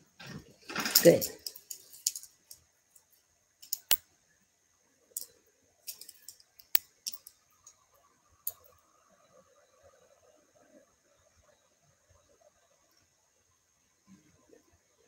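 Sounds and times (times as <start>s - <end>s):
beads clicking together: 1.0s - 4.0s, 5.9s - 7.8s.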